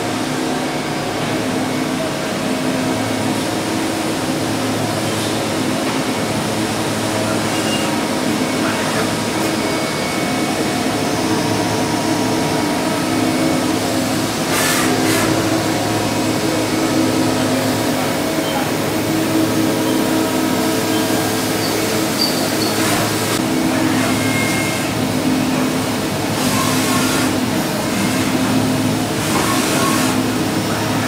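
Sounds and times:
machine motors and fans humming: 0:00.0 - 0:31.0.

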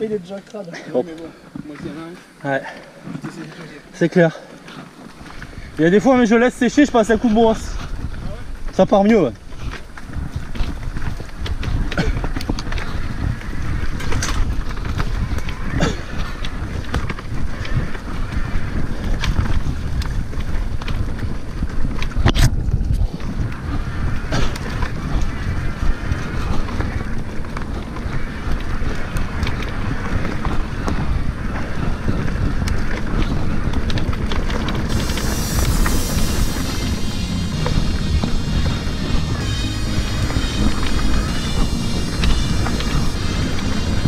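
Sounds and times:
wind buffeting microphone: 0:01.0 - 0:44.0
steady low rumble: 0:34.6 - 0:44.0
music: 0:35.1 - 0:44.0.

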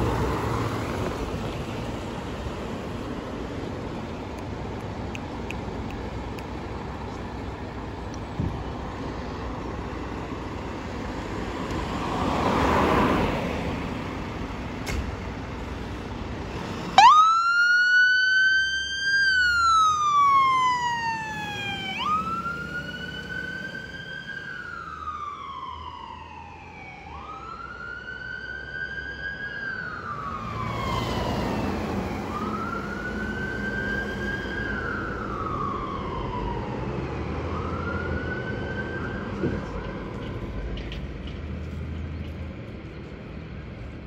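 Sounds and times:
vehicle passing on road: 0:00.0 - 0:44.0
fire engine siren wailing: 0:16.6 - 0:40.6.

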